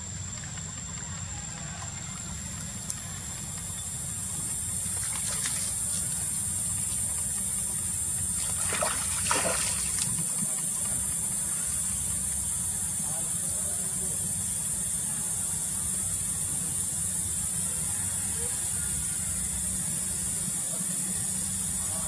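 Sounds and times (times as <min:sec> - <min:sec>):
water sloshing and splashing: 0:04.8 - 0:07.0, 0:08.4 - 0:11.0.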